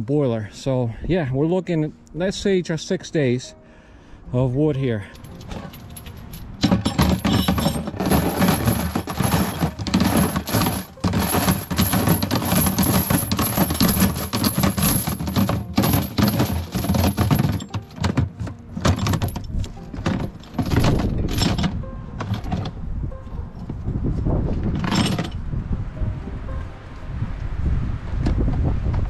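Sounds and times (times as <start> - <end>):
metal clinking and rattling: 5.1 - 22.8, 24.7 - 25.4.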